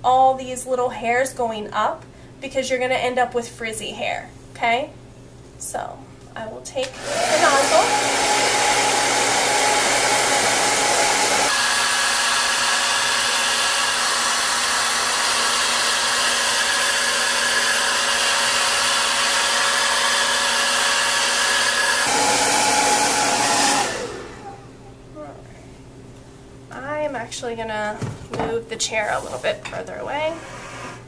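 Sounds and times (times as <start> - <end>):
hair dryer blowing: 6.8 - 24.8.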